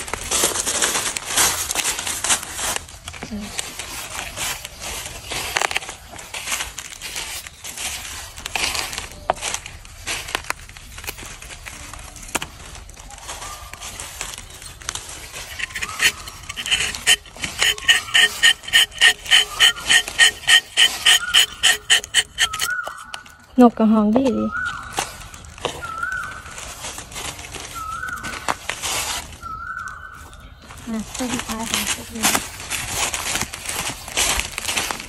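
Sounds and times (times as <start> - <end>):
knife scraping tree bark: 15.0 - 23.2
high-pitched rhythmic pulsing: 15.5 - 22.7.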